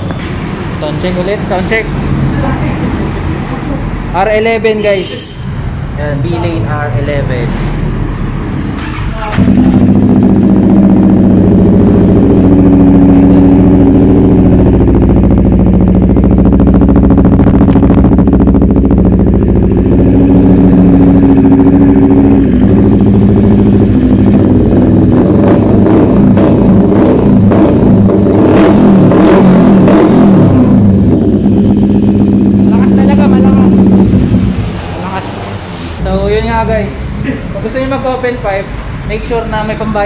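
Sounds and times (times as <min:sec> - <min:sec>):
motorcycle engine revving: 0:07.0 - 0:38.2.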